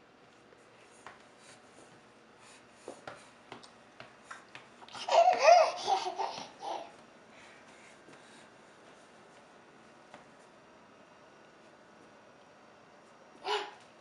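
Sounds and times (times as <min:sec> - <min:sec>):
toddler babbling laughter: 0:05.0 - 0:07.0.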